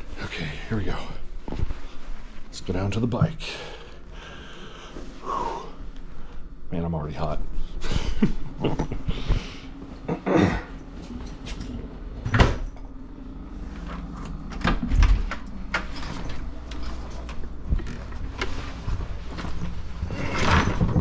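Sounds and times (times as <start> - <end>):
doors opening and closing: 10.8 - 21.0.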